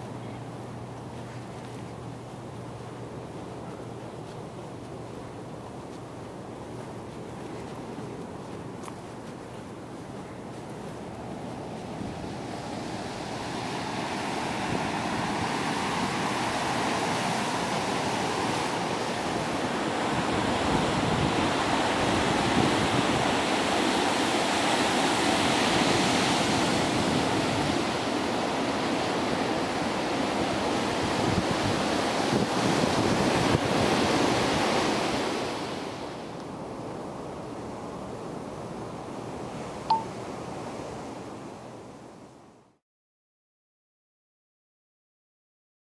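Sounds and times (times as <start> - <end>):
surf washing up a beach: 6.6 - 41.6.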